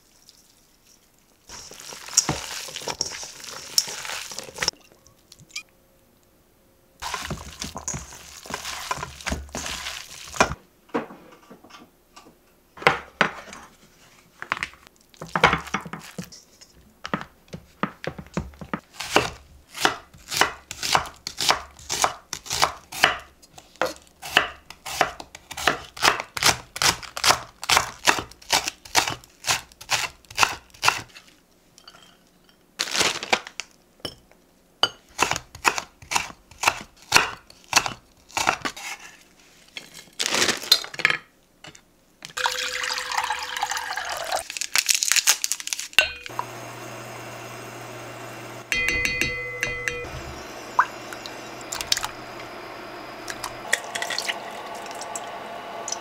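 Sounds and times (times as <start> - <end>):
knocks and handling sounds: 7.0 - 18.9
knife chopping on wooden board: 18.4 - 31.0, 35.2 - 38.7.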